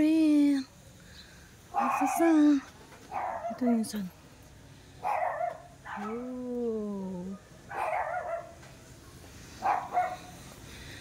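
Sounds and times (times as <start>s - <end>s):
dog barking: 1.7s - 2.3s, 3.1s - 3.9s, 5.0s - 6.2s, 7.7s - 8.6s, 9.6s - 10.3s.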